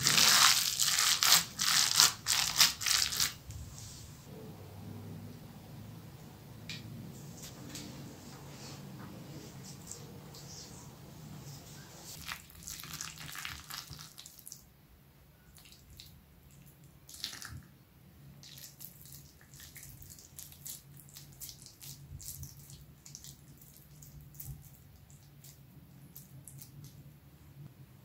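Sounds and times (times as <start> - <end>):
faint low hum: 3.4 - 12.2
hands squelching wet meat mixture: 18.4 - 27.0.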